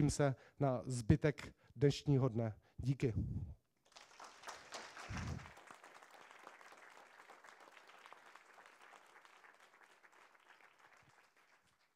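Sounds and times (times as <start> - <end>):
audience clapping: 3.8 - 11.9.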